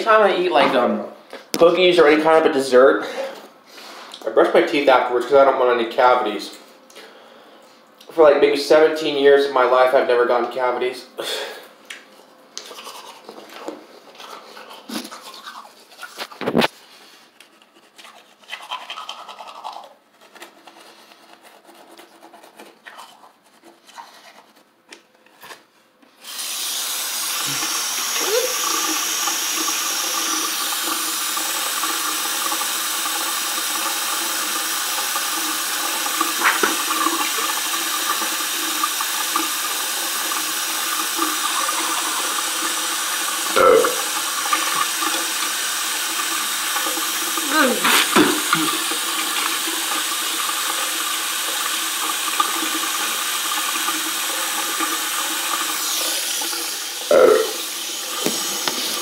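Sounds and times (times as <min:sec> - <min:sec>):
toothbrush brushing teeth: 0:12.6 - 0:16.5, 0:17.3 - 0:24.7, 0:35.2 - 0:38.5, 0:46.1 - 0:49.6
tap water running into sink: 0:26.3 - 0:59.0.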